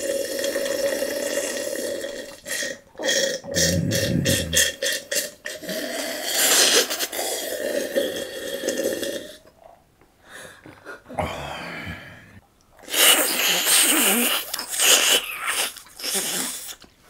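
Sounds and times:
mouth or throat sound: 0.0s - 9.4s
person gulping juice: 0.0s - 9.6s.

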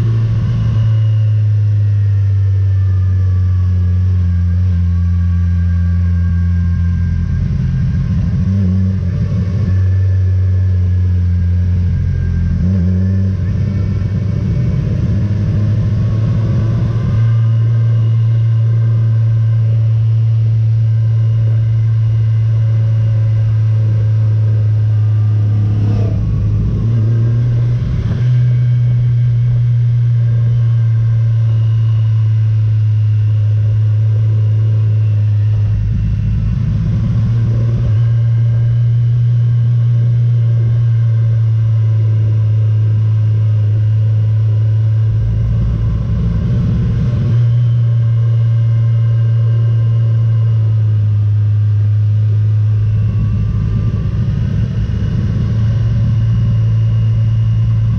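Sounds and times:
low rumble: 0.0s - 57.9s
motorcycle engine droning: 0.0s - 57.9s.

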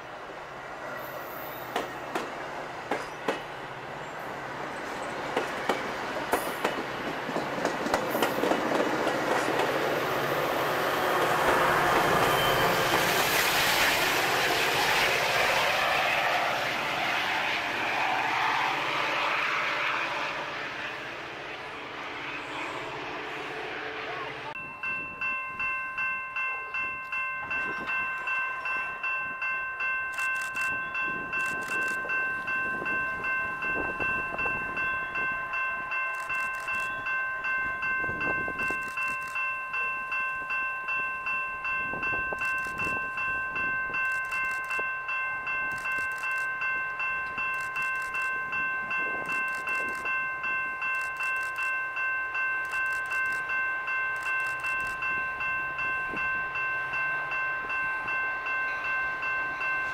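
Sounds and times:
railroad crossing bell ringing: 0.0s - 59.9s.

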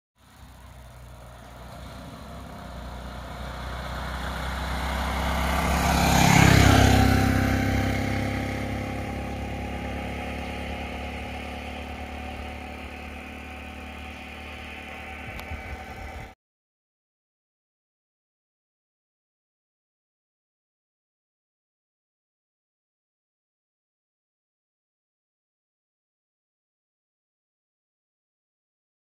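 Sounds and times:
auto-rickshaw driving past: 0.2s - 16.4s.

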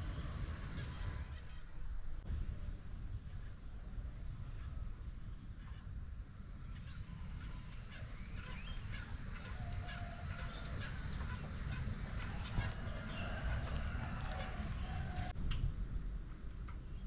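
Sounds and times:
steady high hiss: 0.0s - 17.0s
wind rumble on microphone: 0.0s - 17.0s
bird chirps and calls: 6.7s - 15.3s.

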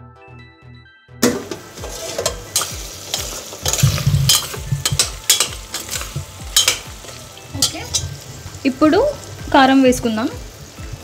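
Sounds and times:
meat sizzling in a pot: 1.2s - 11.0s
steel ladle scraping a pot: 1.4s - 8.3s.

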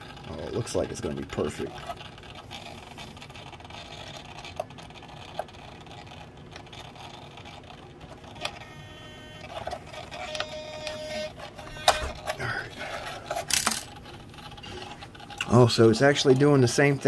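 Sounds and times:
servo electric buzz: 8.4s - 12.4s.

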